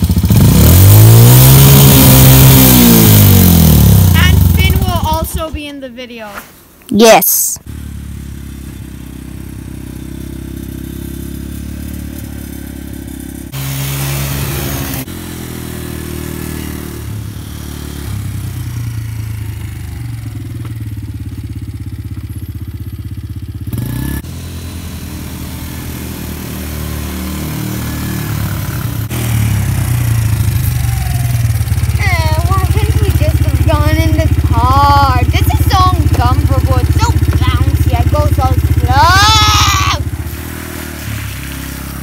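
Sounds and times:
small engine puttering: 7.7s - 15.3s, 17.6s - 42.0s.

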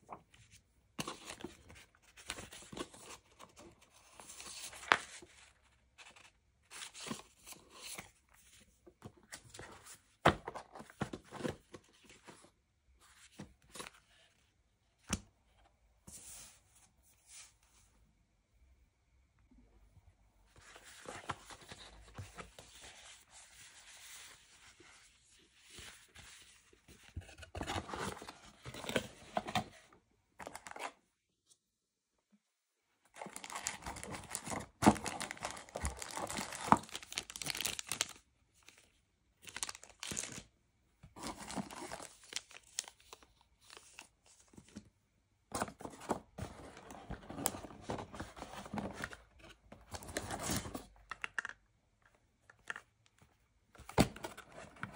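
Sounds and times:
packaging rustling and crinkling: 33.2s - 38.2s, 39.5s - 40.5s, 41.2s - 44.0s.

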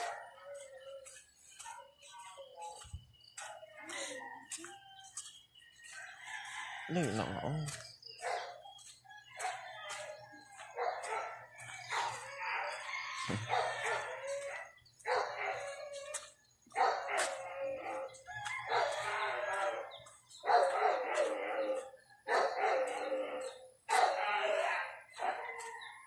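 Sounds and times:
dogs barking and howling: 0.0s - 26.0s
rooster crowing: 6.0s - 7.8s, 8.8s - 16.2s, 16.8s - 26.0s.

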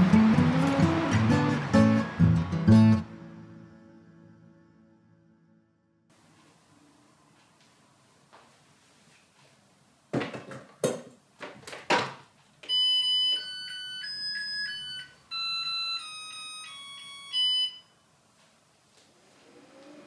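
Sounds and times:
rice cooker beeping melody: 12.7s - 18.0s.

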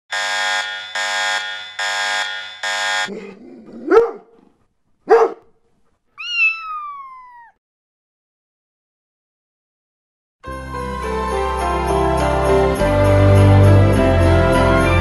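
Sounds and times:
electronic alarm tone pulsing: 0.1s - 3.1s
animal cries: 6.2s - 7.6s.

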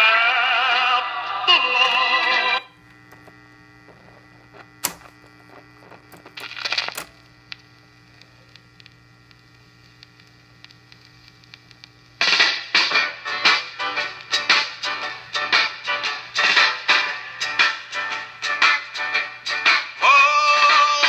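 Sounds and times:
mains hum: 0.0s - 21.0s
record player music: 0.0s - 21.0s
record changer click: 1.8s - 7.7s.

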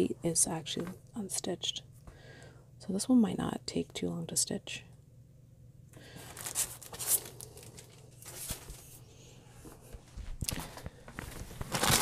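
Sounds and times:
plastic packages rustling: 6.0s - 9.0s, 10.4s - 12.0s
plastic crinkling: 6.1s - 9.0s, 10.5s - 12.0s.

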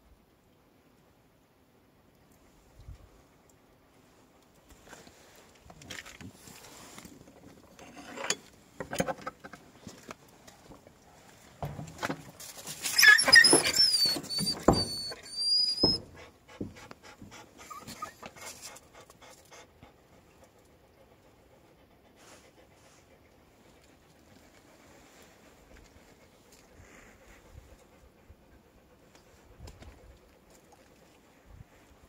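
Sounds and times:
rustling and scuffling: 9.6s - 18.8s
dogs whining and squealing: 12.8s - 16.3s, 17.6s - 18.4s.

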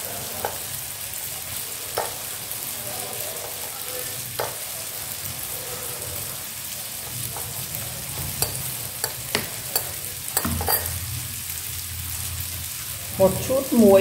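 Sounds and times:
tofu sizzling in oil: 0.0s - 14.0s
metal spoon clinking in bowl: 8.4s - 11.0s.

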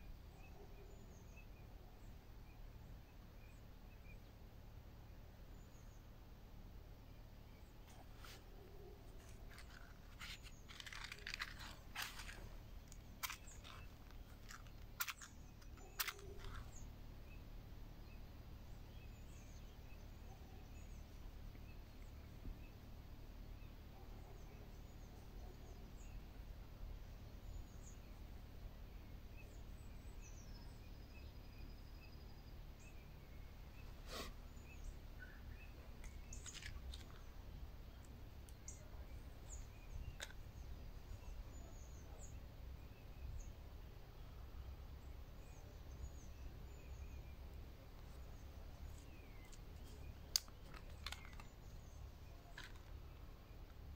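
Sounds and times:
faint bird chirps: 0.0s - 4.4s, 6.9s - 53.9s
low background hum: 0.0s - 53.9s
clicks of small objects handled: 9.2s - 16.8s, 36.0s - 37.3s, 40.0s - 40.4s, 48.9s - 53.9s.

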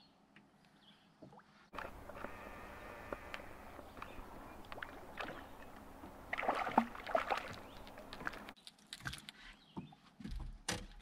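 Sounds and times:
water lapping and dribbling: 1.2s - 9.4s
fish thrashing and splashing: 3.1s - 9.3s.

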